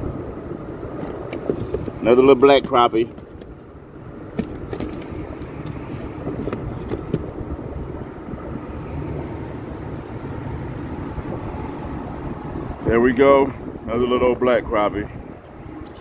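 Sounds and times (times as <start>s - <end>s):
low rumbling noise: 0.0s - 16.0s.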